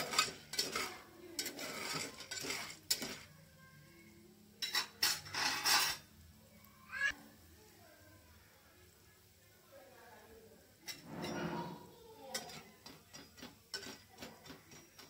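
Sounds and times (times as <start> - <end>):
utensil scraping metal pot: 0.0 - 3.3, 4.6 - 6.1, 10.8 - 15.0.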